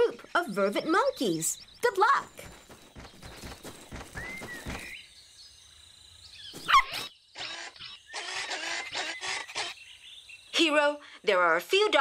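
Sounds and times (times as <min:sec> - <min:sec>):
busy chirping: 0:00.0 - 0:12.0
cartoon pattering steps: 0:00.8 - 0:04.9.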